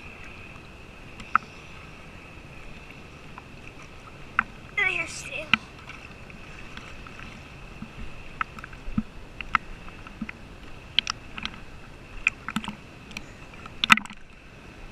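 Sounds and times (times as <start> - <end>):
waves lapping against camera housing: 0.0 - 14.9.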